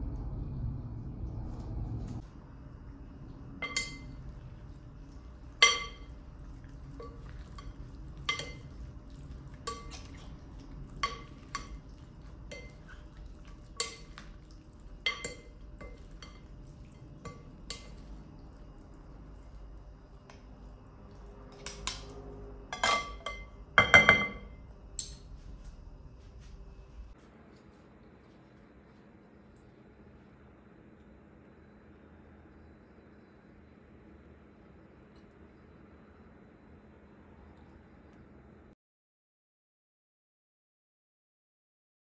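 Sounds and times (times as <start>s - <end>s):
salad servers clinking glass bowl: 3.6s - 4.3s, 5.5s - 18.2s, 22.7s - 25.3s.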